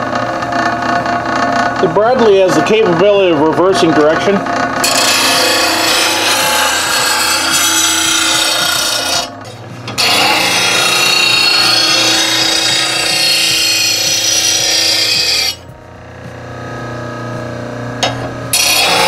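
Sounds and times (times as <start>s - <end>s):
grinding wheel grinding steel blade: 0.0s - 17.3s, 17.9s - 19.0s
motor humming: 0.0s - 19.0s.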